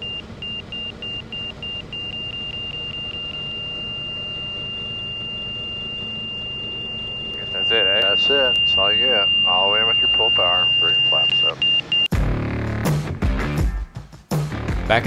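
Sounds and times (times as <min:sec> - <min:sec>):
aircraft engine drone: 0:00.0 - 0:12.1
stall warning beeps: 0:00.0 - 0:12.1.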